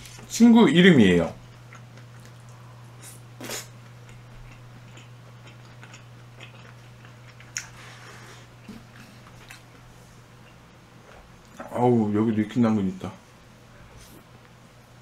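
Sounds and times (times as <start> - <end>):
steady low hum: 0.0 - 15.0
soft chewing: 1.4 - 12.6.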